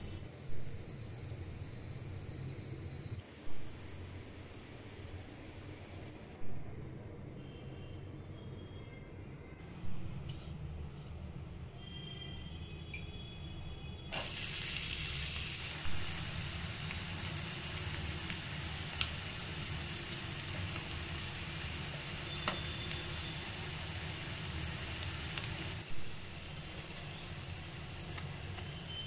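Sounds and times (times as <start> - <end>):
onions sizzling in hot oil: 14.1 - 29.0.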